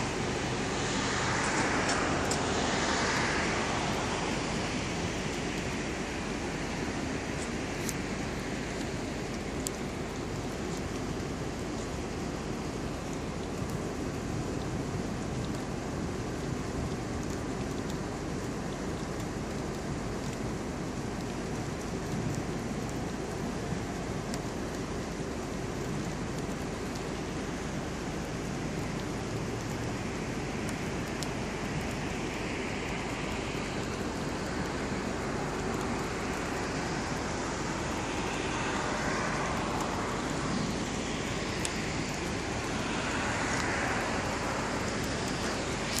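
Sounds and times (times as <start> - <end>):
rain rushing hiss: 0.0 - 46.0
faint ticks: 45.0 - 46.0.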